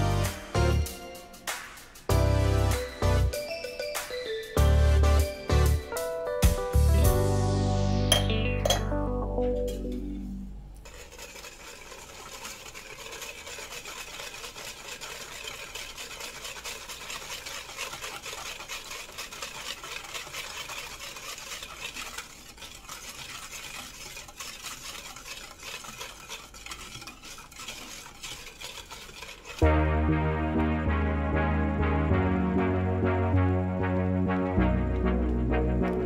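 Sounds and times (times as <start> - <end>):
wire whisk beating in plastic bowl: 10.8 - 29.9.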